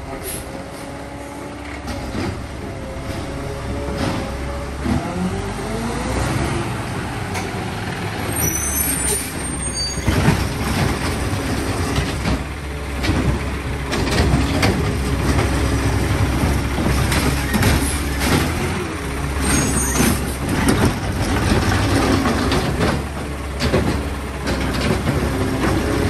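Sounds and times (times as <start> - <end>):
garbage truck diesel engine: 0.0 - 26.0
knocks and clanks: 1.6 - 5.2, 10.0 - 18.8, 19.4 - 26.0.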